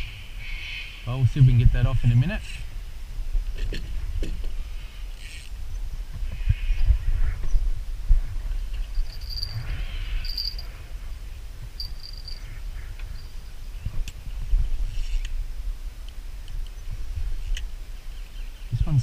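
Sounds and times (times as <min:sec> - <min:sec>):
wind rumble on microphone: 0:00.0 - 0:19.0
high-pitched insect chirps: 0:09.0 - 0:10.8, 0:11.8 - 0:13.4.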